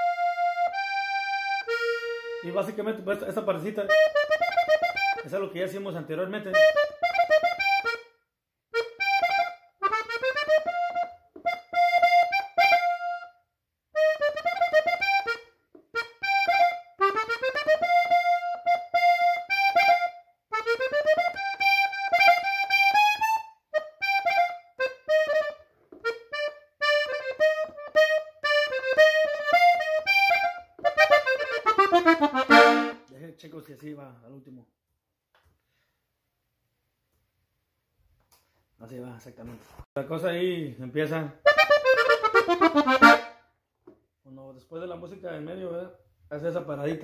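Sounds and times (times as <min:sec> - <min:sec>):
button accordion melody: 0:00.0 - 0:33.1, 0:41.4 - 0:43.6.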